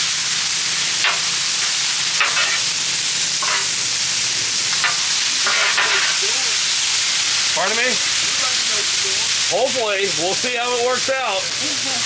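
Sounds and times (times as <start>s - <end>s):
food sizzling on a griddle: 0.0s - 12.0s
metal spatula scraping: 2.2s - 2.7s, 3.4s - 3.7s, 4.8s - 6.2s.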